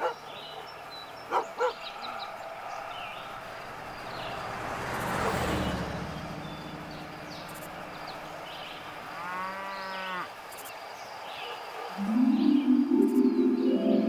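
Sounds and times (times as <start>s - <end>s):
cow mooing: 9.2s - 10.3s.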